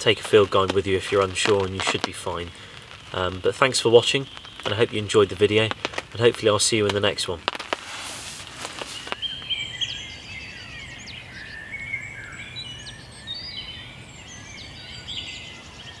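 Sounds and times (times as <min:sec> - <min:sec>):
songbirds singing: 0:00.0 - 0:07.7, 0:08.4 - 0:16.0
clicks and rustles: 0:00.0 - 0:09.3
faint low background noise: 0:00.0 - 0:16.0.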